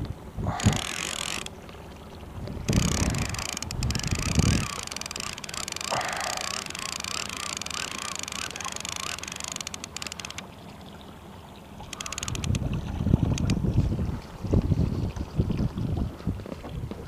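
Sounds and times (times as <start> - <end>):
wind and water rumble: 0.0 - 17.0
fishing reel whirring: 0.5 - 1.5, 2.7 - 10.5, 11.9 - 12.6
rapid clicking from reel: 0.6 - 1.5, 2.7 - 10.4, 11.9 - 12.6.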